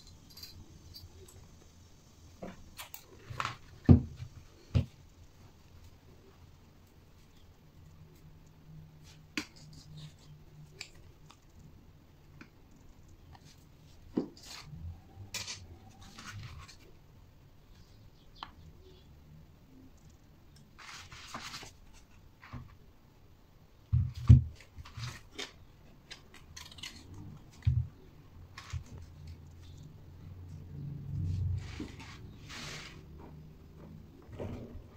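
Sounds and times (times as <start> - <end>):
copper wire rustling and scraping: 12.8 - 17.0, 20.5 - 22.8, 24.6 - 34.9.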